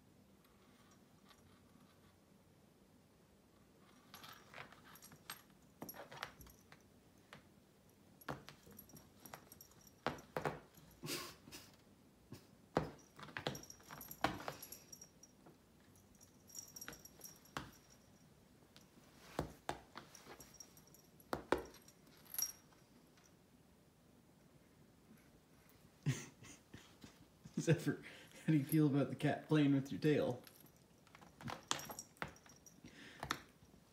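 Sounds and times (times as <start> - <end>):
light metallic jingling: 3.8 - 11.7, 12.4 - 23.4, 26.1 - 33.9.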